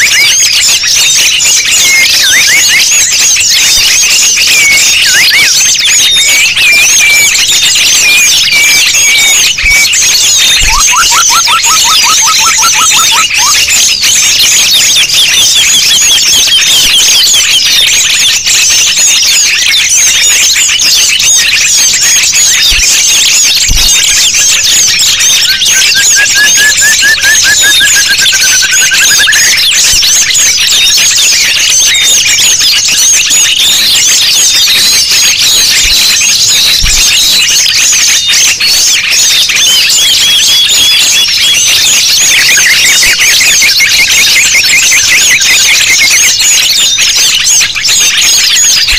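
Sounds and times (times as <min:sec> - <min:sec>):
songbirds chirping and trilling: 0:00.0 - 0:48.9
slow low bird trill: 0:01.6 - 0:42.3.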